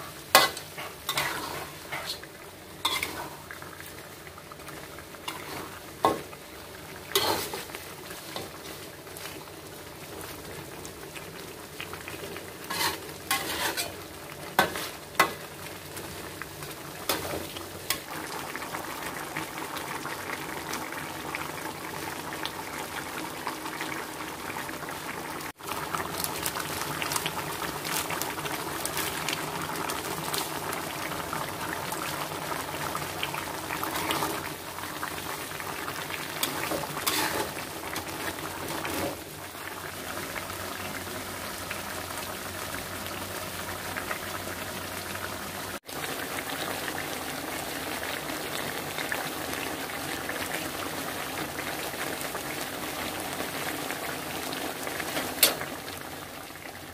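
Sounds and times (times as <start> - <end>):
sauce bubbling and hissing: 0.0 - 56.9
metal spatula scraping pan: 0.4 - 2.2, 2.8 - 3.4, 7.1 - 7.7, 12.7 - 14.0, 36.4 - 37.6.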